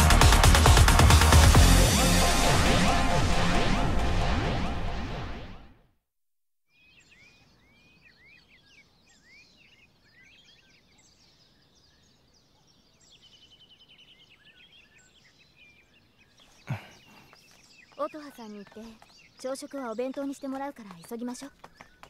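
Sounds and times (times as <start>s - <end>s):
faint songbirds chirping: 6.7s - 22.0s.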